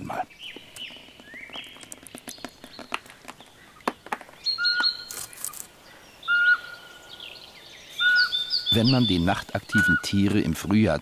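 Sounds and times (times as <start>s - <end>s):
owl whistling calls: 4.4s - 5.2s, 6.2s - 10.1s.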